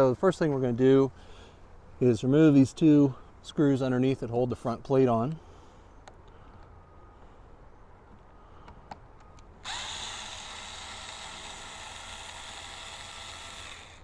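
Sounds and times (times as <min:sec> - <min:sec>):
cordless drill spinning: 0:09.6 - 0:14.0.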